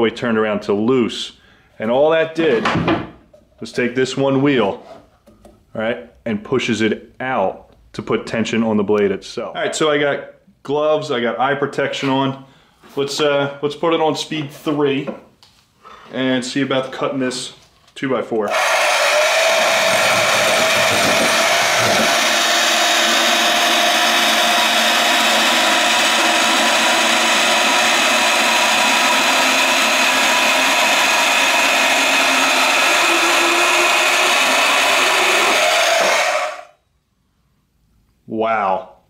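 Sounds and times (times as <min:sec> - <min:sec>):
band saw cutting wood: 0:18.5 - 0:36.7
motor spinning down: 0:18.5 - 0:36.7.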